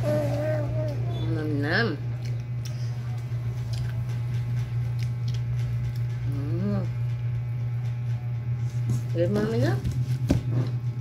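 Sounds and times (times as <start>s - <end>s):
person humming: 0.0s - 1.3s
steady low hum: 0.0s - 11.0s.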